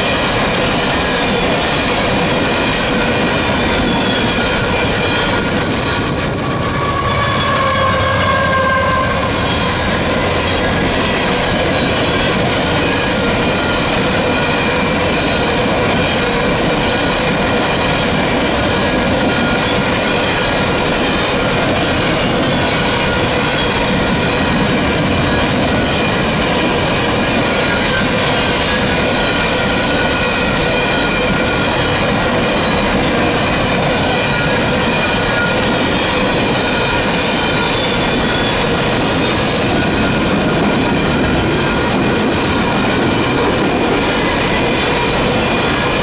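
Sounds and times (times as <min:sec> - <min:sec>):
train wheels rumbling on rails: 0:00.0 - 0:46.0
high-pitched wheel squeal: 0:02.6 - 0:17.0, 0:26.8 - 0:42.8.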